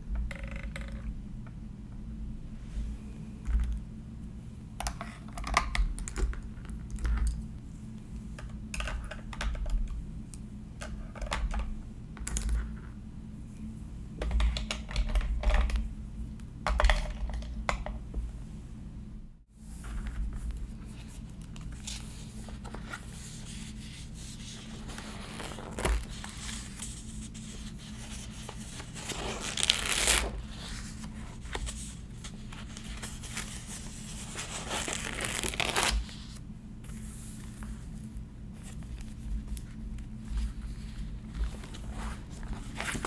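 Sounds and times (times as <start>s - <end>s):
notebook pages turning: 19.8s - 36.4s, 40.3s - 43.0s
paper rustling: 19.8s - 36.4s.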